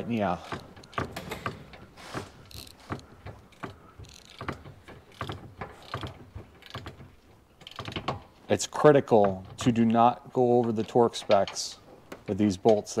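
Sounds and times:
ratchet wrench clicking: 2.4 - 7.0, 7.6 - 8.2.

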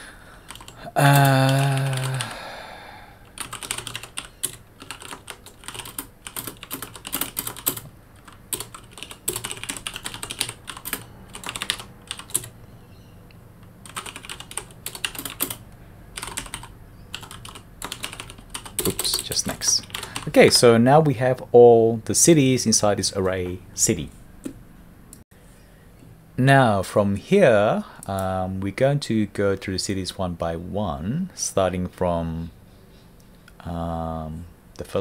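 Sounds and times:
keyboard typing: 0.5 - 2.3, 3.2 - 12.6, 13.6 - 15.6, 16.2 - 20.4.

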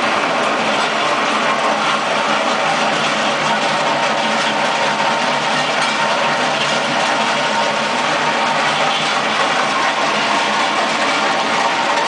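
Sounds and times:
planer drum grinding concrete: 0.0 - 12.0.

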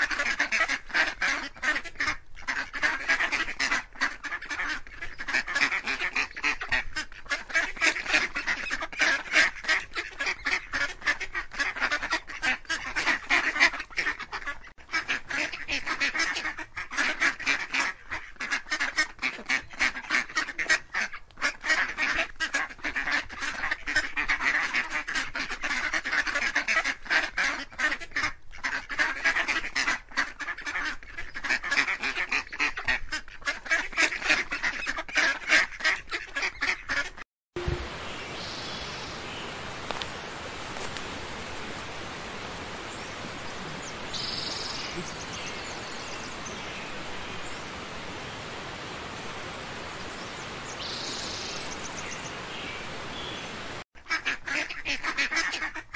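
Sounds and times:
ducks and geese quacking and honking: 0.0 - 37.2, 42.8 - 47.4, 54.0 - 55.9.

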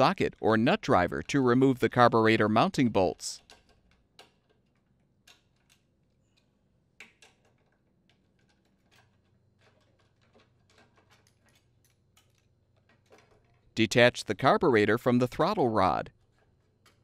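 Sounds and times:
nut driver and metal parts clicking: 3.4 - 13.7.

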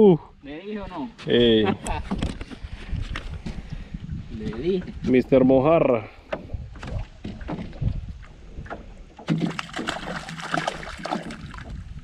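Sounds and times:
knocks and rattles on boat: 1.9 - 3.6, 6.2 - 11.9.

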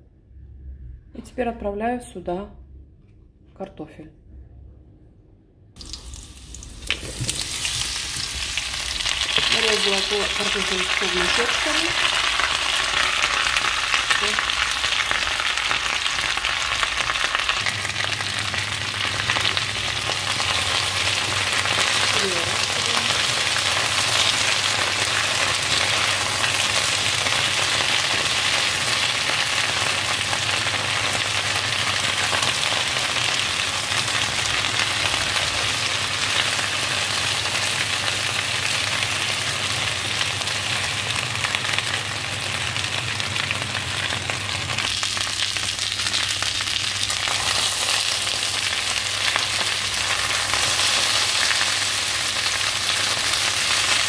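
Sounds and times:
potatoes sizzling in oil: 5.8 - 54.0
spatula turning potatoes: 43.4 - 54.0.

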